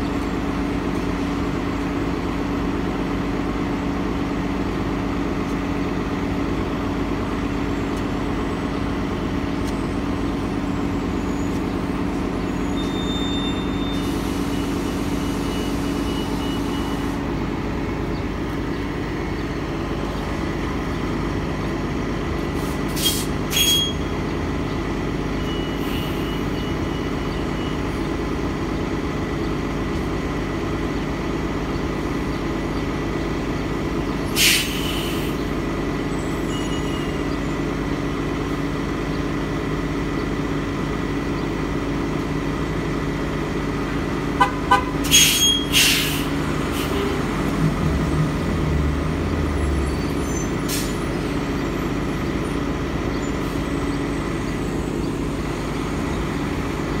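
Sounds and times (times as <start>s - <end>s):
bus engine idling: 0.0s - 57.0s
sharp air hisses: 34.3s - 35.4s, 45.2s - 47.0s.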